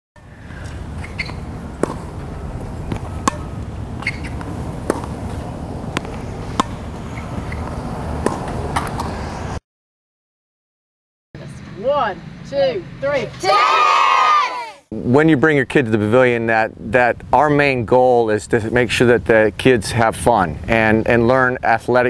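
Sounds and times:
steady low rumble: 0.2 - 8.8
tennis balls struck with rackets: 0.4 - 9.4.

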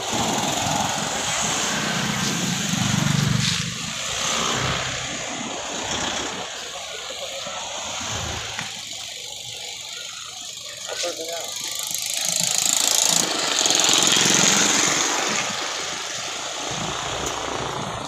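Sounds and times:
vehicle passing by: 0.0 - 8.7.

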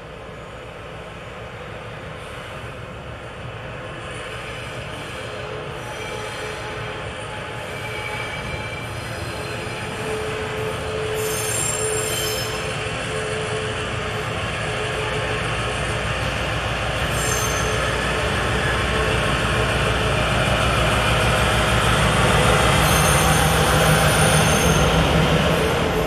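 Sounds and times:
train wheels rumbling: 3.4 - 26.0
wheel flange squeals: 4.6 - 13.8, 17.0 - 19.2, 22.4 - 26.0.

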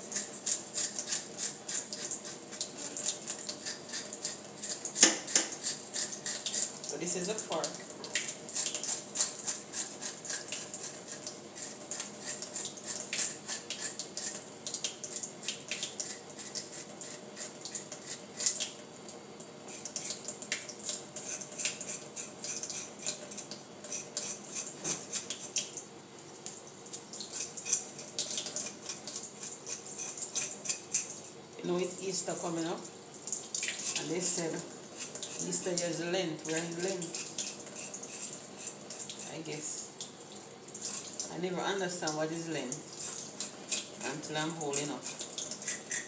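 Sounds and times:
fork scraping fish scales: 0.1 - 7.4, 8.5 - 14.4, 16.0 - 18.6, 21.2 - 25.7, 27.2 - 31.4, 33.7 - 35.8, 36.6 - 39.4, 40.8 - 41.2, 42.9 - 46.0
tap water splashing into sink: 5.0 - 5.6.

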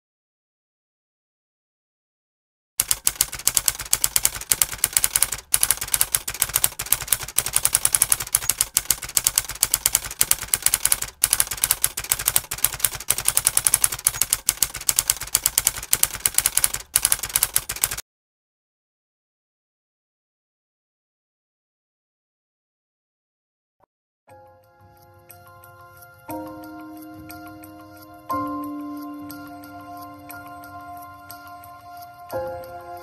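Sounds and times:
typewriter key clicks: 2.8 - 18.0.

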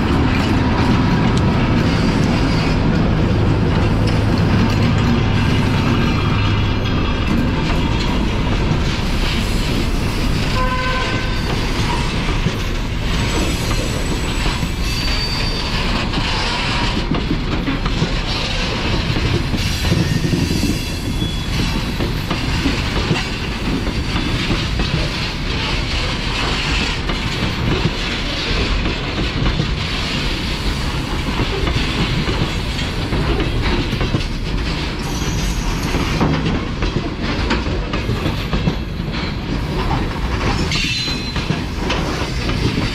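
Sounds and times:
train wheels rumbling on rails: 0.0 - 42.9
high wheel squeals: 13.1 - 16.7, 19.6 - 21.8.

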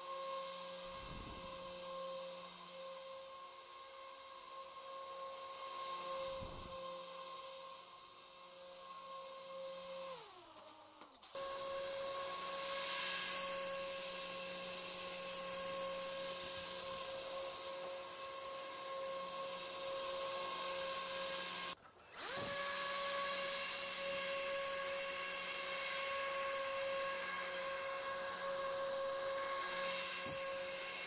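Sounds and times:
motor-driven fans whining: 0.0 - 31.0.

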